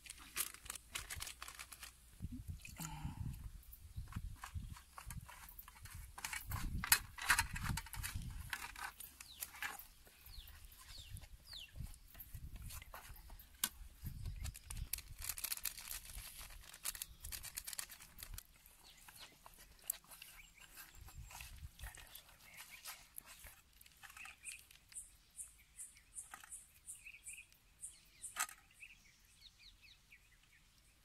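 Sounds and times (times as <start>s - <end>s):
plastic packets crinkling: 0.0s - 2.0s, 12.7s - 25.0s
birds chirping: 2.4s - 31.0s.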